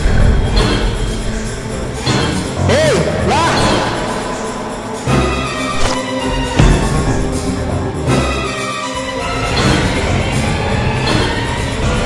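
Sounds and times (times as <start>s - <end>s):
dramatic film score: 0.0s - 12.0s
heavy low hit: 6.6s - 8.1s.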